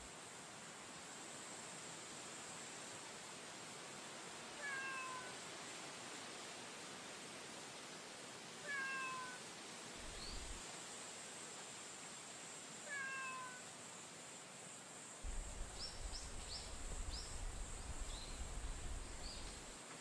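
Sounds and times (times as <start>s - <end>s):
cat meowing: 4.6s - 5.3s, 8.7s - 9.4s, 12.9s - 13.7s.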